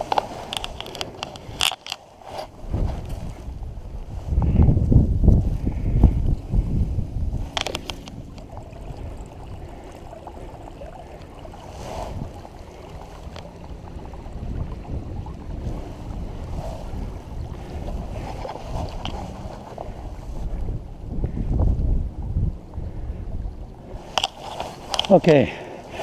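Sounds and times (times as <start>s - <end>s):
handling rustle: 0.0s - 3.6s, 16.5s - 20.5s, 23.9s - 26.0s
wind buffeting microphone: 0.0s - 26.0s
water lapping at shore: 7.3s - 26.0s.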